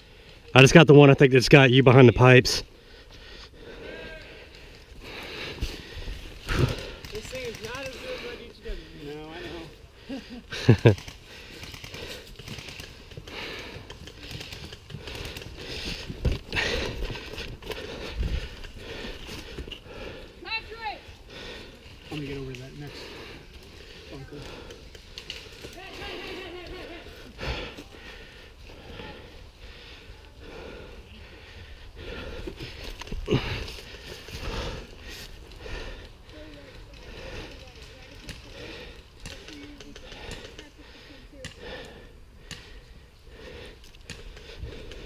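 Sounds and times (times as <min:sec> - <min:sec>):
person breathing hard: 0:02.7 - 0:09.0, 0:09.8 - 0:22.2, 0:22.8 - 0:45.0
scattered clicks: 0:06.5 - 0:08.1, 0:10.7 - 0:15.9, 0:39.2 - 0:40.7.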